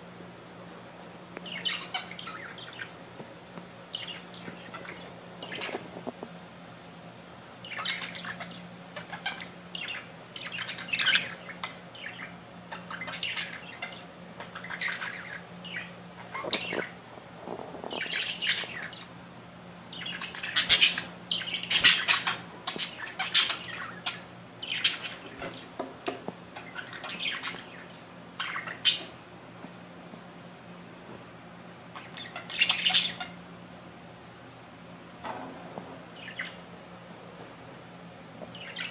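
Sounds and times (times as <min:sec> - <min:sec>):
faint low hum: 0:00.0 - 0:38.9
budgerigars chattering: 0:01.5 - 0:03.0, 0:07.6 - 0:17.0, 0:17.9 - 0:19.1, 0:19.9 - 0:25.7, 0:26.6 - 0:29.1, 0:32.0 - 0:33.4.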